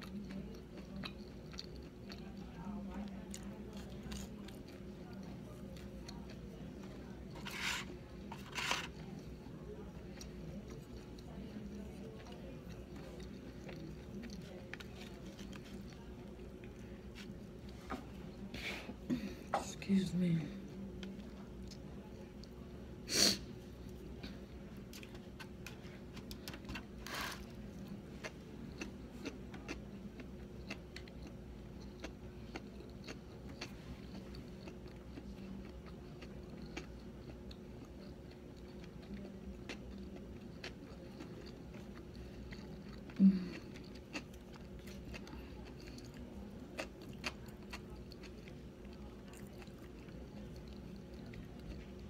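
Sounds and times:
faint steady hum: 0:00.0 - 0:52.0
person chewing with wet mouth clicks: 0:28.2 - 0:51.8.

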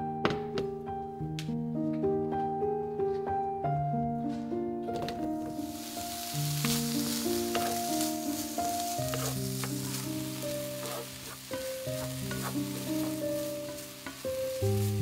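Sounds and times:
soft piano music: 0:00.0 - 0:15.0
ham sizzling in a frying pan: 0:05.4 - 0:15.0
wooden tongs clicking on pan: 0:11.5 - 0:14.5.

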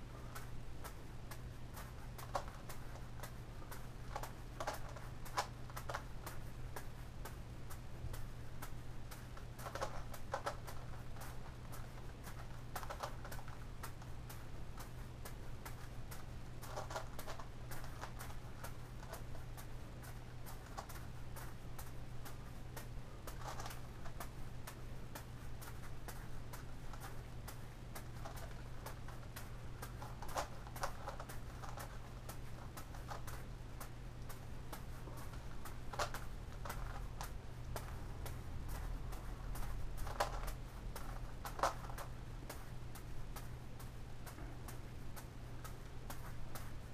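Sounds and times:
constant low hum: 0:00.0 - 0:46.9
juggling balls landing in hand: 0:00.3 - 0:46.9
plastic puzzle layers clicking: 0:01.8 - 0:03.4, 0:04.1 - 0:06.4, 0:09.1 - 0:14.4, 0:15.7 - 0:19.7, 0:22.8 - 0:24.3, 0:25.2 - 0:43.5.

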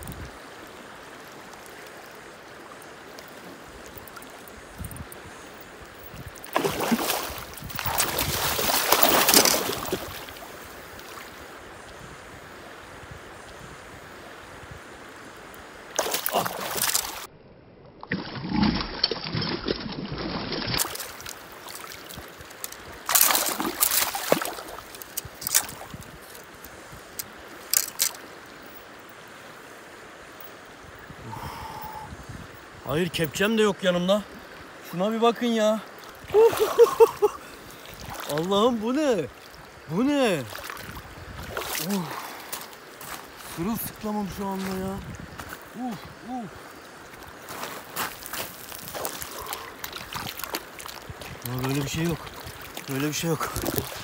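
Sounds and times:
river rushing: 0:00.0 - 0:17.3, 0:20.7 - 0:54.0
fish splashing in water: 0:06.3 - 0:11.3, 0:15.9 - 0:17.3, 0:18.1 - 0:25.9, 0:48.0 - 0:54.0.

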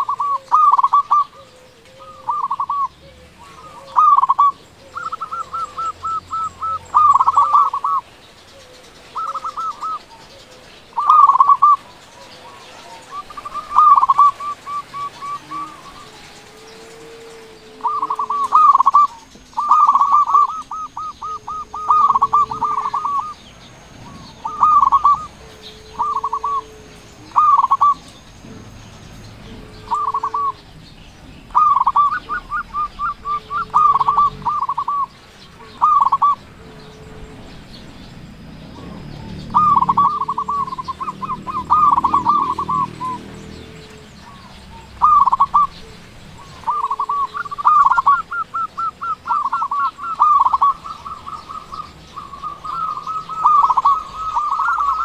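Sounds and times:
soft low coo: 0:00.0 - 0:07.9, 0:12.2 - 0:23.4, 0:24.0 - 0:28.6, 0:29.4 - 0:30.8, 0:31.6 - 0:38.0
dove cooing: 0:00.0 - 0:55.0.

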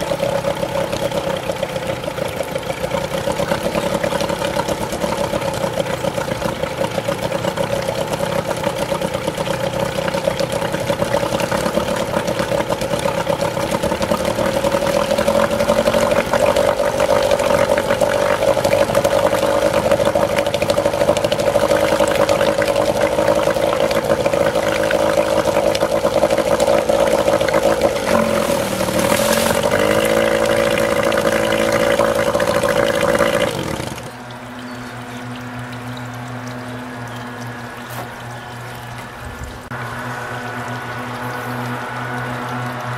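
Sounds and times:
outboard motor running: 0:00.0 - 0:42.9
running water: 0:00.0 - 0:42.9.

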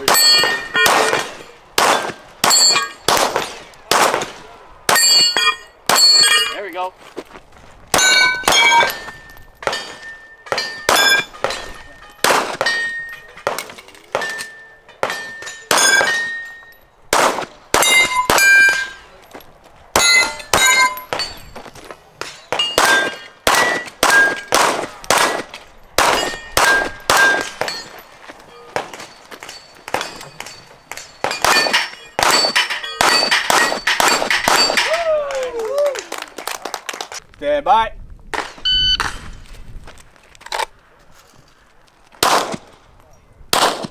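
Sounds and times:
steel targets clanging: 0:00.0 - 0:04.3, 0:04.9 - 0:06.9, 0:08.0 - 0:16.9, 0:17.8 - 0:35.0
gunshots: 0:00.0 - 0:06.4, 0:07.9 - 0:12.8, 0:17.1 - 0:19.0, 0:22.2 - 0:27.8, 0:28.7 - 0:34.9, 0:42.2 - 0:42.8, 0:43.5 - 0:43.9.

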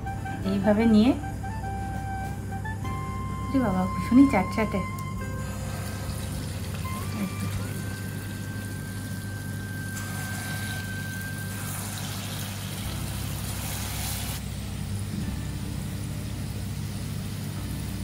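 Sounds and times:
steady low hum: 0:00.0 - 0:18.0
fritters sizzling in hot oil: 0:05.2 - 0:18.0.

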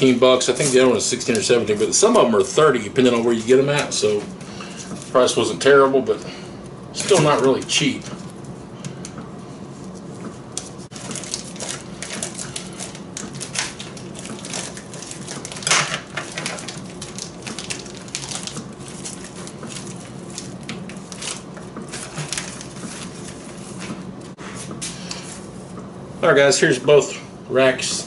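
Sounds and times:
plastic packaging crinkling: 0:09.8 - 0:24.0.

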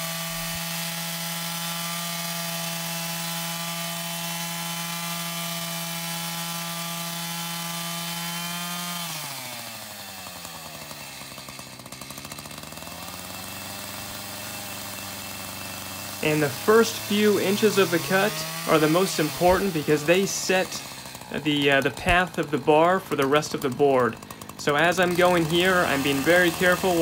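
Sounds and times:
chain cutting wood: 0:00.0 - 0:27.0
chainsaw running at high revs: 0:00.0 - 0:27.0.

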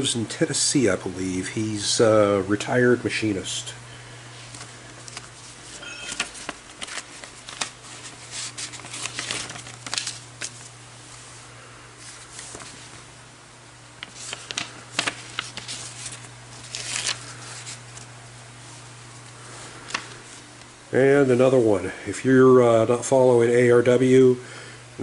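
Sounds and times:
steady low hum: 0:00.0 - 0:25.0
paper rustling and crinkling: 0:04.4 - 0:10.8, 0:12.0 - 0:13.0, 0:14.0 - 0:20.5.

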